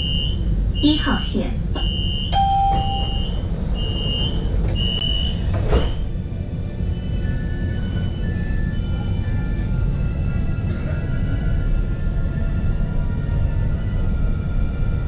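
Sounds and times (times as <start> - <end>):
door warning beeps: 0.0 - 1.0, 1.8 - 6.1
tram rumble: 0.0 - 15.0
tram doors shutting thud: 1.7 - 6.3.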